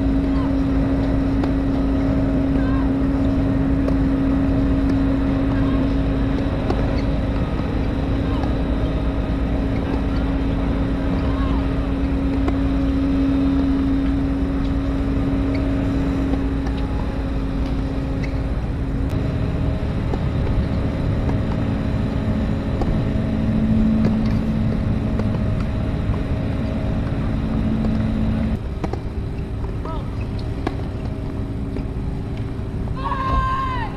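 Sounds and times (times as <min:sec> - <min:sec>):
motor drone: 0:00.0 - 0:33.9
tennis ball strikes: 0:00.2 - 0:18.3, 0:22.6 - 0:23.2, 0:23.8 - 0:26.3.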